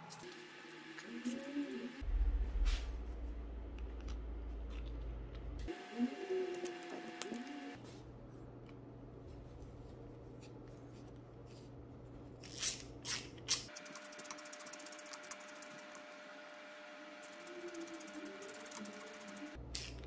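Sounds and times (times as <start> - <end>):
low hum: 0.0 - 9.2.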